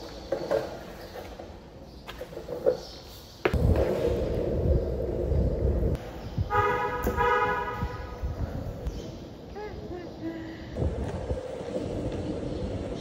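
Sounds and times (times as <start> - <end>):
skateboard wheels rolling on concrete: 0.0 - 10.2, 10.8 - 13.0
car horn honking: 6.5 - 8.2.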